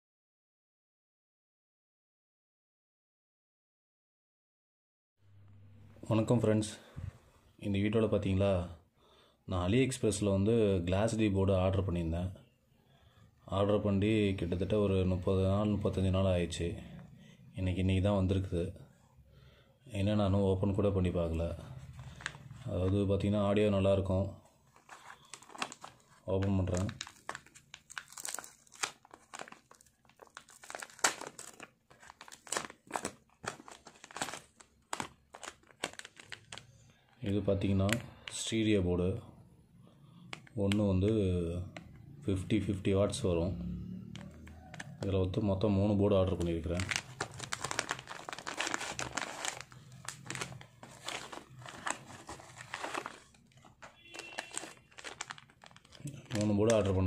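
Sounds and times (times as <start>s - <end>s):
padded envelope crinkling and tearing: 21.8s - 23.0s, 24.7s - 37.0s, 46.2s - 57.0s
foil bag crackling: 21.9s - 22.8s, 24.7s - 36.8s, 46.5s - 57.0s.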